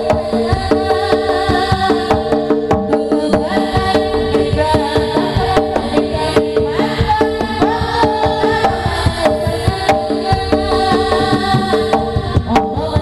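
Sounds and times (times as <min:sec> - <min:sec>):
hand drums beating: 0:00.0 - 0:13.0.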